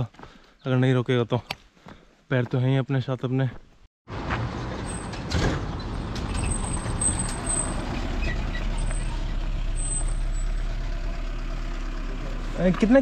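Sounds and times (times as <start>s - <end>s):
vehicle engine running: 7.2s - 13.0s.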